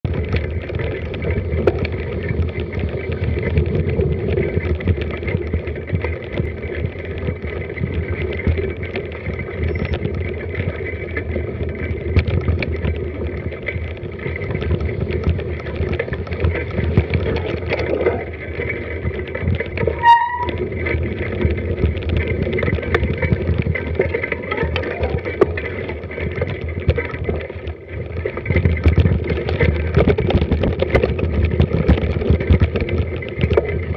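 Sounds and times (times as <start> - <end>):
bike tyres and frame rattling: 0.0 - 33.9
wind noise on microphone: 0.0 - 33.9
high squeak: 19.9 - 20.6.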